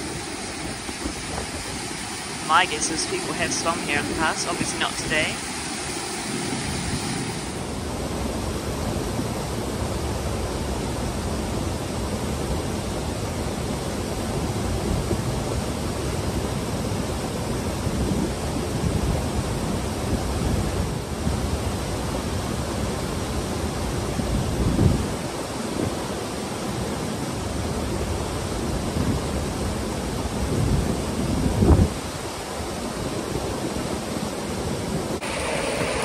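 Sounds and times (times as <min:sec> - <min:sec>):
stream water rushing over rocks: 0:00.0 - 0:08.6, 0:32.0 - 0:36.0.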